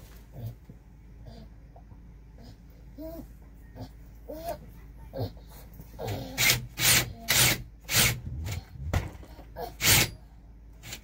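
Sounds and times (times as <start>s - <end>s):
scraping strokes on wood: 9.8s - 10.2s.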